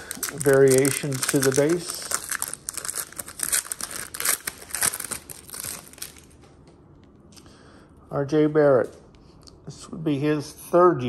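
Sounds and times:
foil wrapper crinkling and tearing: 0.0 - 6.4
cards rustling: 0.0 - 6.5.

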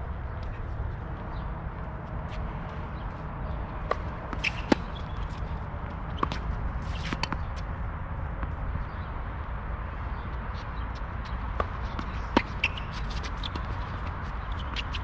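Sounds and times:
tennis ball bouncing: 3.4 - 7.7, 10.6 - 15.0
racket striking tennis ball: 3.8 - 5.1.

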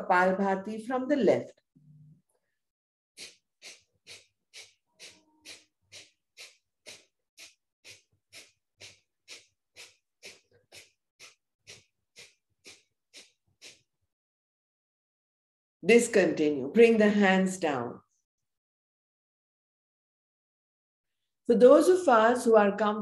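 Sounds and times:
forceful breathing exhalations: 3.2 - 14.0.

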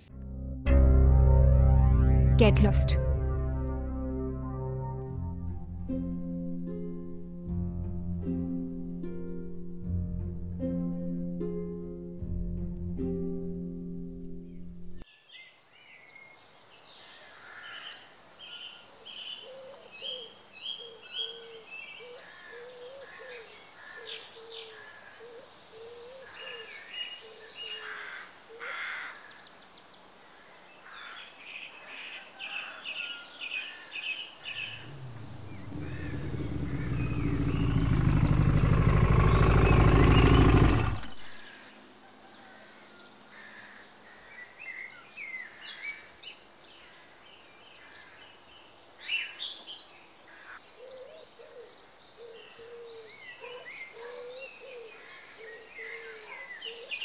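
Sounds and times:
birds chirping: 34.2 - 41.7
low engine rumble: 34.6 - 41.4.

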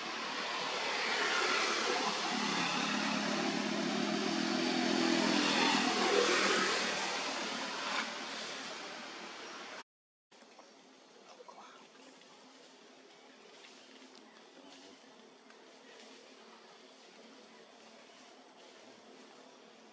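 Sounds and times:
motor vehicle passing by: 0.0 - 9.8.

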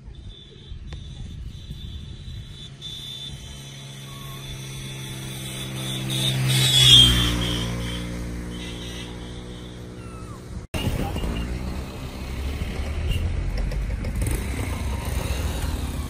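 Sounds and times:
motor vehicle passing by: 2.2 - 16.0.

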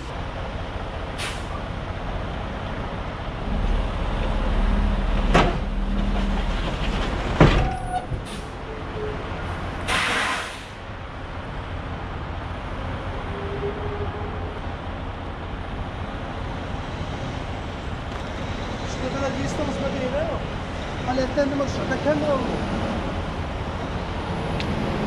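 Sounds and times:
truck engine rumble: 0.0 - 25.0
air hiss: 9.9 - 10.8.

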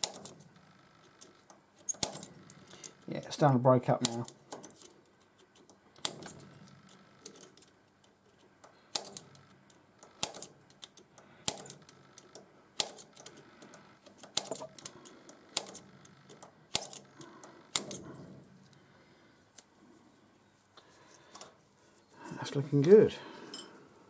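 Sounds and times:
centre punch snapping: 8.6 - 9.4, 10.0 - 12.0, 12.8 - 13.3.

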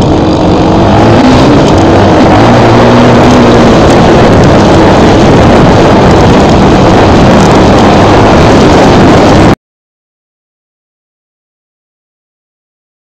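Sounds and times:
dirt bike engine running: 0.0 - 9.6
wind noise: 0.0 - 9.6.

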